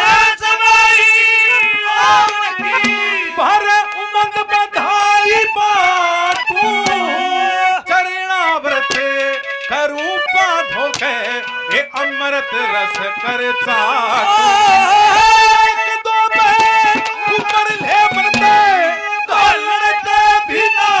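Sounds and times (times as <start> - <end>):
man singing: 0.0 - 21.0
hand drum strokes: 2.2 - 3.7, 6.3 - 7.6, 16.6 - 18.9.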